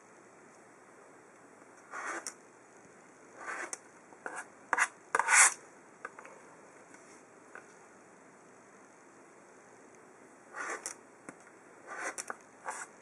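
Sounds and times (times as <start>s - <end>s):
ruler sliding over cutting mat: 1.9s - 2.4s, 3.4s - 5.6s, 10.5s - 11.0s, 11.9s - 12.9s.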